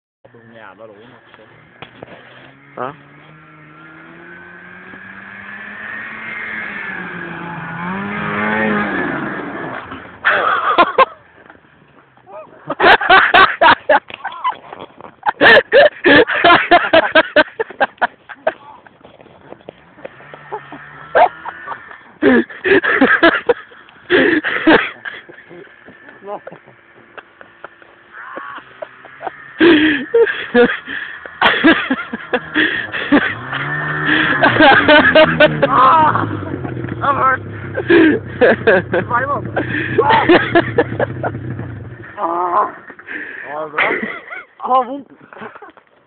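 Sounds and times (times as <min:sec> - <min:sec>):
snowmobile engine passing by: 0:00.3 - 0:14.0, 0:14.8 - 0:44.4
person crying out: 0:35.5 - 0:37.3, 0:42.2 - 0:42.8.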